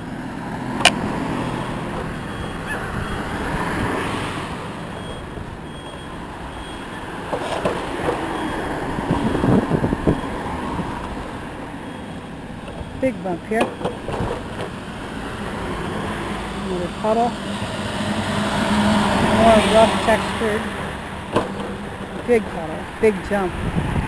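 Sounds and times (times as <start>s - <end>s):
power wheelchair rolling: 0.0s - 17.9s, 19.2s - 23.0s
sharp click: 0.8s - 1.0s.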